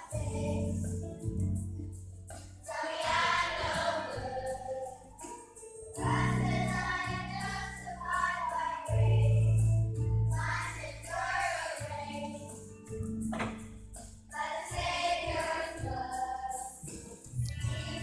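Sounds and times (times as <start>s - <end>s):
children's choir singing: 0.0s - 0.8s, 2.7s - 5.0s, 6.0s - 9.4s, 10.3s - 12.4s, 14.3s - 16.9s, 17.6s - 18.0s
instrumental accompaniment: 9.7s - 18.0s.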